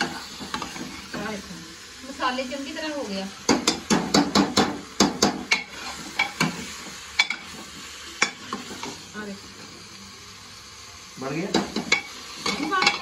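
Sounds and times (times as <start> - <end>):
frying sizzle: 0.0 - 13.0
spoon clinking and scraping pot: 11.8 - 13.0.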